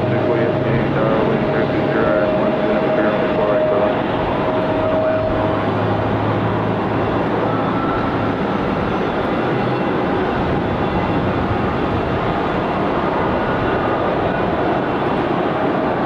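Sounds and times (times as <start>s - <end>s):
jet taxiing: 0.0s - 16.0s.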